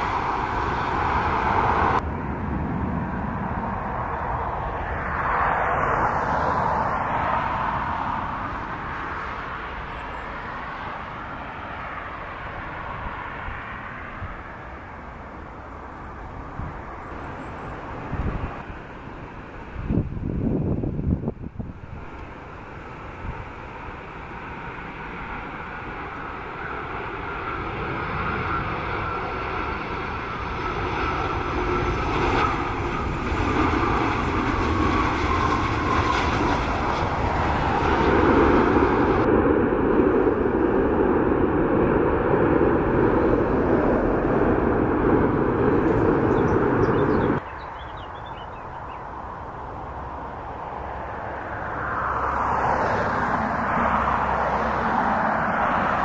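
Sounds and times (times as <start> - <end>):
jet engines with falling whine: 0.0 - 56.0
jet rush on touchdown: 31.2 - 47.4.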